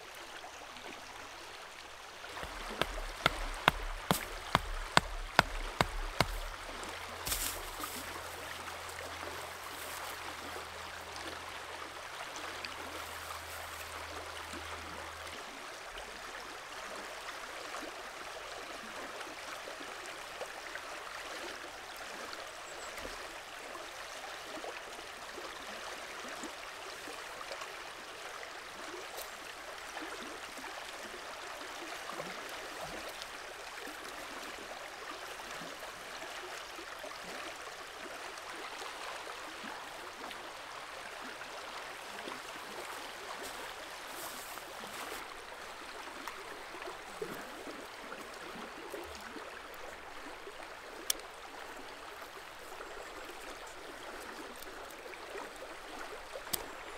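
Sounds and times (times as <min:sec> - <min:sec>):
river flowing: 0:00.0 - 0:56.9
hatchet strikes: 0:02.4 - 0:07.9.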